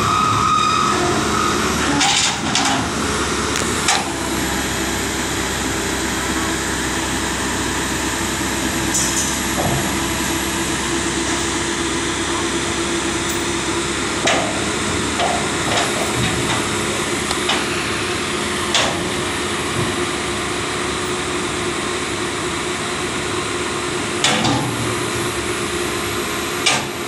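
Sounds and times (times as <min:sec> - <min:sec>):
excavator engine running: 0:00.0 - 0:27.0
steel clanking on steel: 0:00.9 - 0:03.0, 0:08.9 - 0:10.4, 0:13.1 - 0:17.9, 0:24.2 - 0:25.3.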